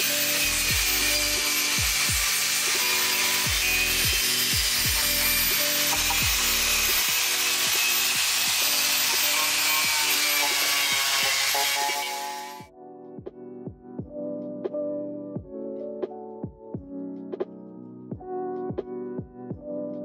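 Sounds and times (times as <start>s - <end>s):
power tool hissing on metal: 0.0s - 12.6s
electronic music with deep kick drum: 0.7s - 2.4s, 3.5s - 7.1s, 12.6s - 14.3s, 15.4s - 15.6s, 16.4s - 17.0s, 18.1s - 19.9s.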